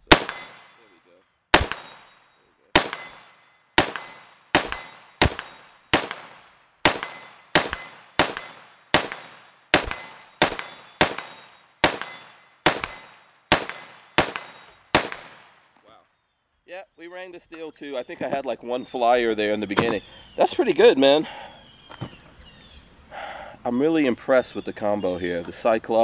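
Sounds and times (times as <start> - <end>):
rifle gunshots with echo: 0.0 - 0.9, 1.5 - 15.8.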